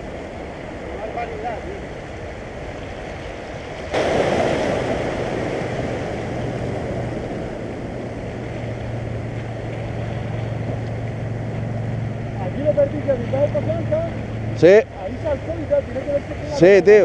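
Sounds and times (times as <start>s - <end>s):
sea waves washing against rocks: 0.0s - 17.0s
steady low hum: 3.8s - 16.9s.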